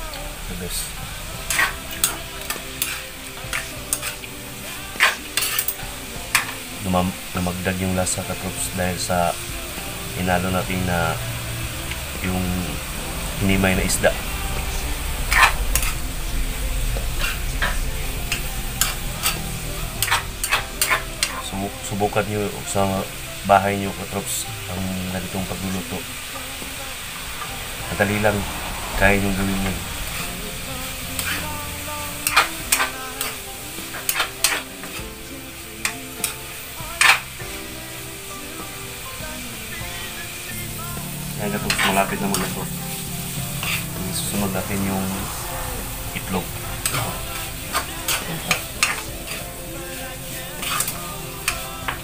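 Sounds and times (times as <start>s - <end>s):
hot oil sizzling: 0.0s - 52.0s
metal spatula scraping a wok: 1.2s - 6.7s, 14.2s - 16.2s, 16.8s - 22.0s, 30.0s - 35.0s, 37.0s - 37.3s, 41.4s - 52.0s.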